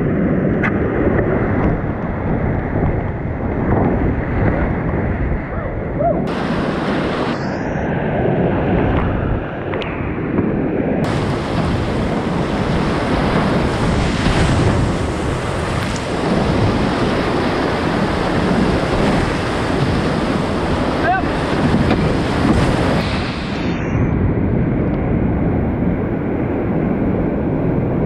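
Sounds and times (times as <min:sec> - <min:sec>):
whitewater rapids rushing: 0:06.2 - 0:07.8, 0:11.0 - 0:23.7.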